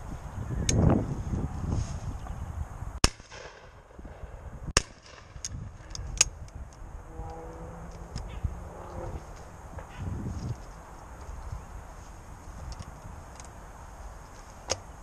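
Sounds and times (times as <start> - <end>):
shotgun shots: 3.0 - 3.9, 4.8 - 5.4
sharp clicks: 4.8 - 9.0.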